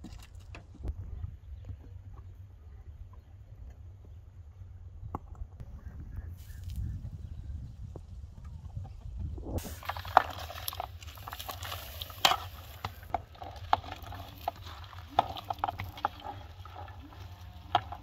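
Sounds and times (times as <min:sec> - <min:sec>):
cabbage rustling into a pot: 0:09.6 - 0:18.0.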